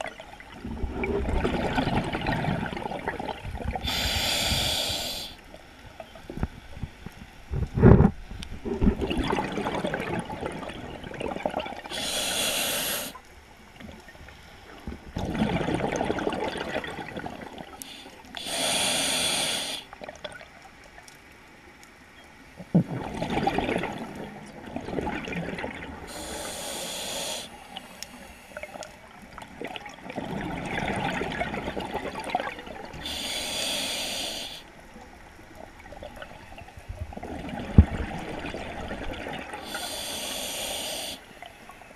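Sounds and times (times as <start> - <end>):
gurgling exhaust bubbles underwater: 0.0 - 5.3, 7.5 - 13.1, 13.7 - 17.8, 22.6 - 26.9, 28.6 - 34.0, 35.1 - 41.9.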